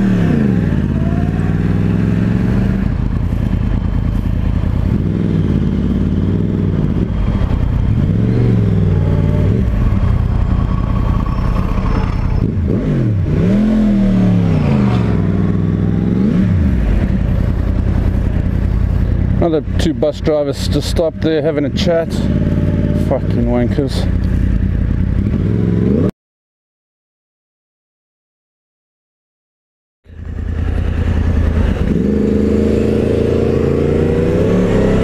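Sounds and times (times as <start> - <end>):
motorcycle engine revving: 0.0 - 26.1, 30.1 - 35.0.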